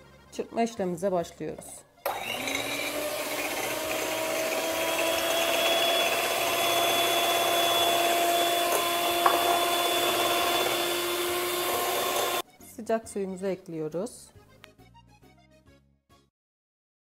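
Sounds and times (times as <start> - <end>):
electric hand mixer whining: 2.1 - 12.4.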